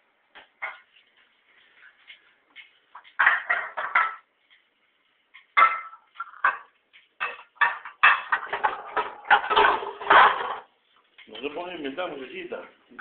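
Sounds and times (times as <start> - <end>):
pots and pans clattering: 3.0 - 4.3, 5.6 - 10.7.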